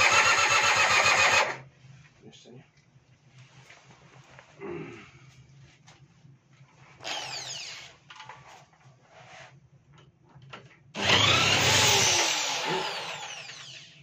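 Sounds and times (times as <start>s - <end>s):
electric starter cranking engine: 0.0s - 1.6s, 11.0s - 14.0s.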